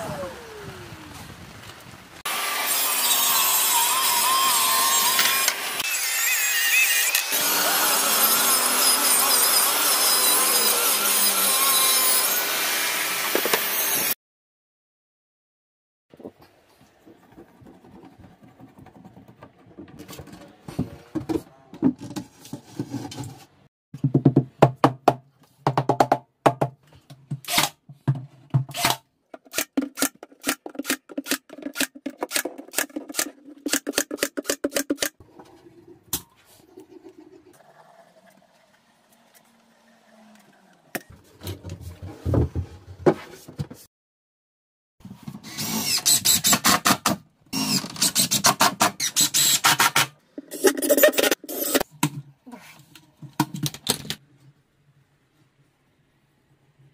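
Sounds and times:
cordless driver driving screws: 47.6s - 51.8s.

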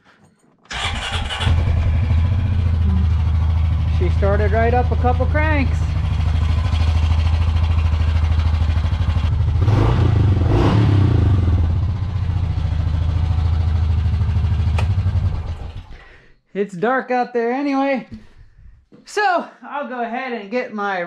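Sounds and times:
single-cylinder engine running: 0.7s - 16.0s.

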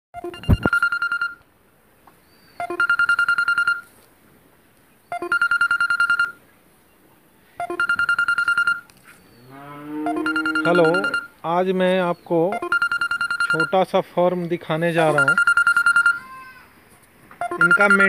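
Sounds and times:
electronic telephone ringtone: 0.2s - 1.4s, 2.6s - 3.9s, 5.1s - 6.4s, 7.6s - 8.9s, 10.0s - 11.4s, 12.5s - 13.8s, 15.0s - 16.2s, 17.4s - 18.0s.

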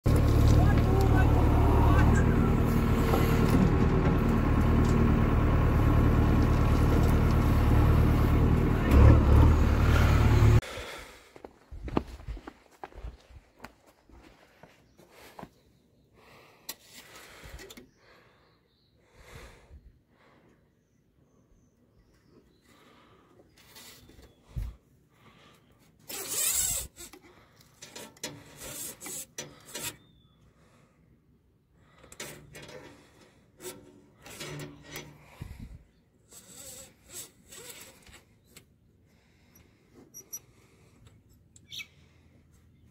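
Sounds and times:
diesel engine running under load: 0.0s - 11.0s
hand rustling among engine wiring: 23.4s - 30.2s.

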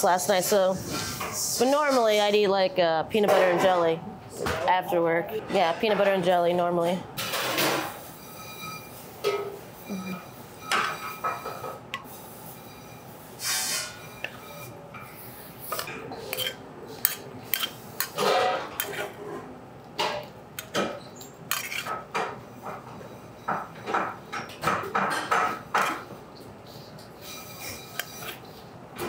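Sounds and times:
metal spoon scraping skillet: 7.3s - 9.0s, 12.5s - 19.2s, 21.5s - 22.0s, 26.7s - 28.7s
tongs clinking and scraping: 15.7s - 19.1s, 21.5s - 22.0s.

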